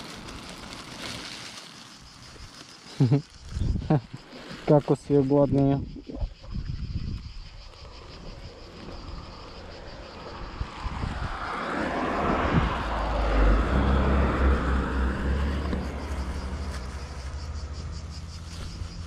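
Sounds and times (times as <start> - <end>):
cars driving past: 8.1 - 19.0.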